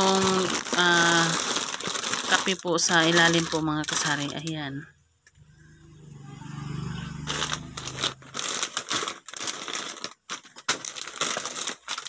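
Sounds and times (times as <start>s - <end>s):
plastic packets crinkling: 0.0s - 4.7s, 7.3s - 12.0s.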